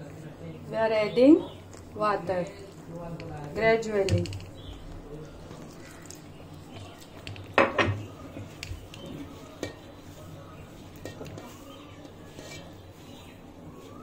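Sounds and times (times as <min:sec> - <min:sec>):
metal bowl clattering: 0:10.8 - 0:11.7.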